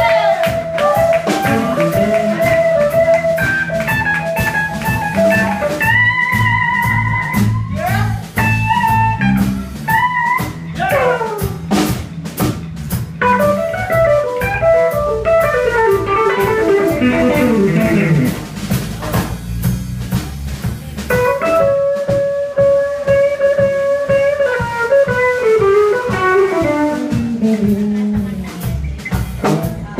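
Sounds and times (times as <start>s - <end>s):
electric guitar solo: 0.0s - 7.7s, 13.2s - 18.4s, 21.2s - 28.1s
live blues-rock band playing: 0.0s - 29.9s.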